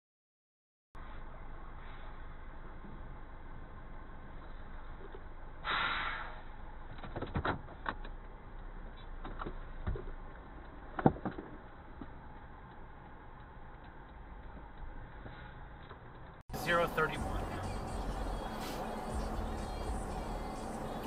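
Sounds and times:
short hiss: 5.6s - 6.4s, 18.4s - 19.1s
low steady hum: 8.2s - 21.0s.

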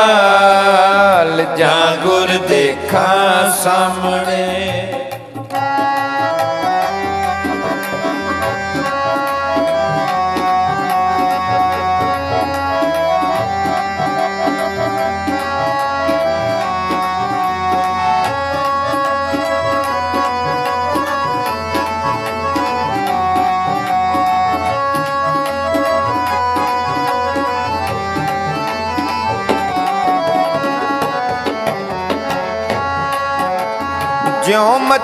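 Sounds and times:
harmoniums playing melody: 0.0s - 35.0s
tabla rhythm: 0.0s - 35.0s.

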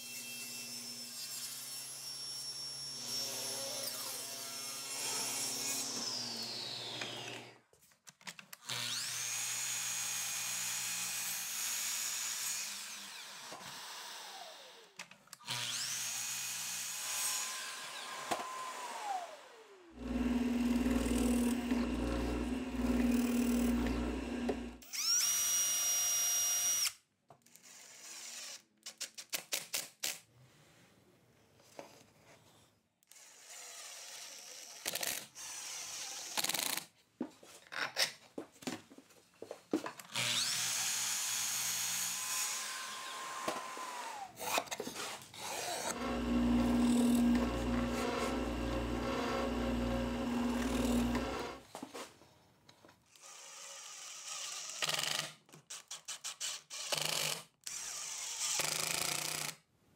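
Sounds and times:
miter saw cutting wood: 3.0s - 7.5s, 15.5s - 25.2s, 40.2s - 51.6s
drill driving screws: 8.6s - 27.0s, 27.6s - 28.6s, 33.1s - 36.9s, 40.0s - 51.6s, 53.1s - 55.4s, 56.2s - 59.6s
cordless drill running: 15.5s - 27.0s, 40.1s - 44.4s, 45.4s - 51.6s, 57.7s - 59.0s.

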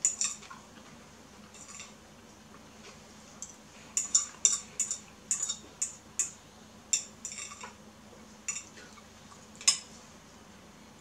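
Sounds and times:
metal spoon clinking on ceramic bowl: 4.0s - 7.7s, 8.5s - 8.7s.

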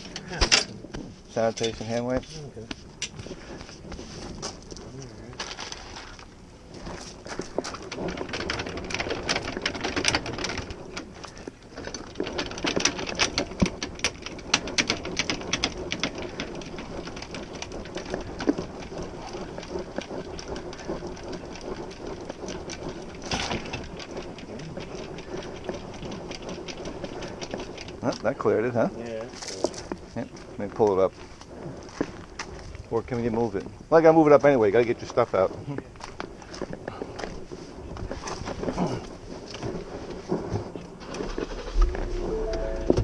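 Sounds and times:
jack cranking clicks and grinding: 6.8s - 30.0s.

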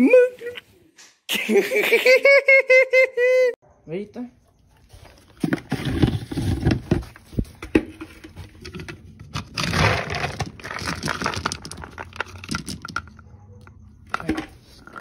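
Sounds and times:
plastic scoop clicking: 8.6s - 13.2s
dry kibble rattling in a bin: 9.4s - 13.2s.

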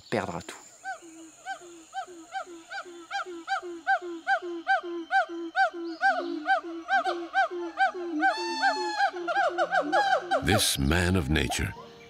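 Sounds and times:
gibbon hooting: 3.5s - 11.1s.

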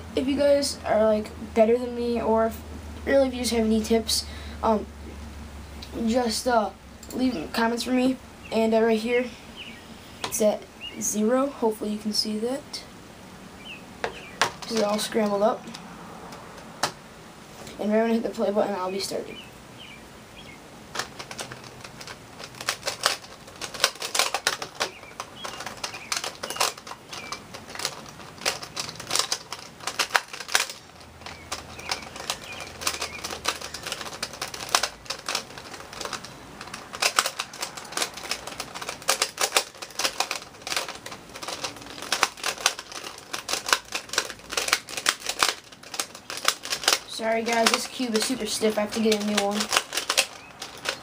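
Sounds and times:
plastic puzzle cube clicking: 20.9s - 51.0s.

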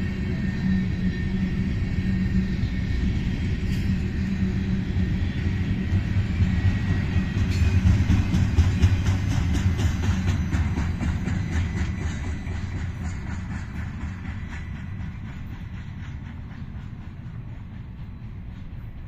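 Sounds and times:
freight train rumble: 0.0s - 19.0s
wheels clacking over rails: 5.7s - 19.0s.

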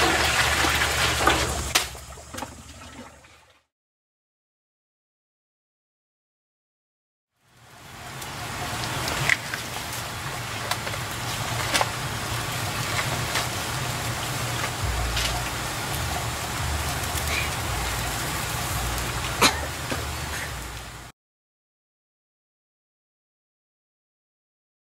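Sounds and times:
wood fire crackling and popping: 8.0s - 21.1s.

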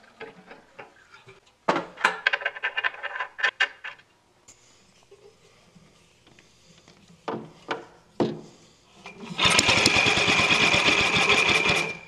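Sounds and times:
small engine starting and running: 9.2s - 12.0s.

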